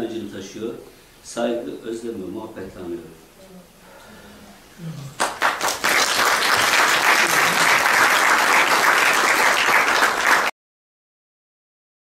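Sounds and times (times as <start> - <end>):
audience applauding: 5.2 - 10.5.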